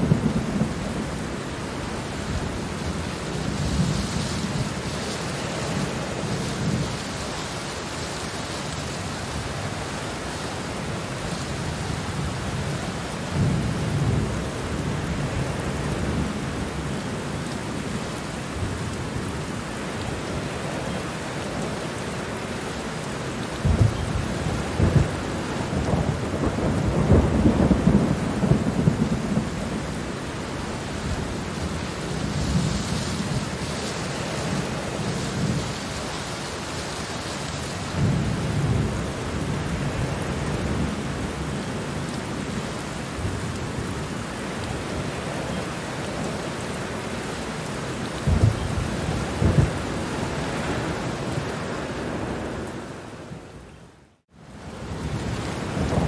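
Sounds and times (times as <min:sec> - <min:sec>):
steady rain falling: 0:00.0 - 0:56.0
thunder rumbling: 0:23.6 - 0:44.1, 0:48.1 - 0:53.1, 0:54.8 - 0:56.0.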